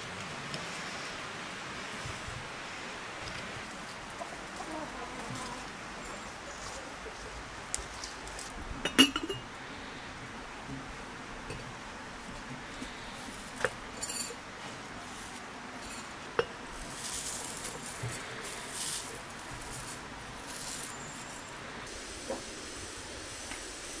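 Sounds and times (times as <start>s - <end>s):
clinks on ceramic teapot: 8.9s - 9.4s
loose tea leaves pattering: 12.7s - 22.0s.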